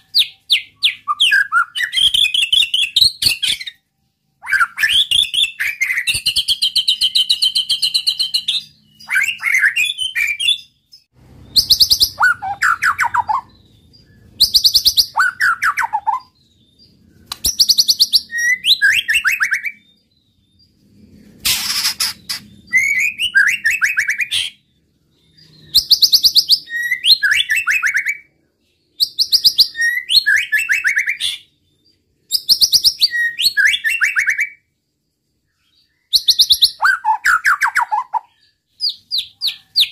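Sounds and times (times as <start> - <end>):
songbird singing: 0.0 - 39.9
high bird trill: 4.4 - 20.0, 21.4 - 28.3.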